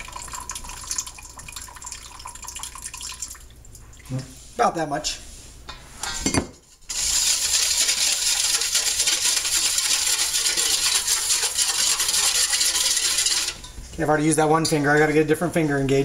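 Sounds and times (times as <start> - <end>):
whisk scraping metal bowl: 6.7 - 13.7.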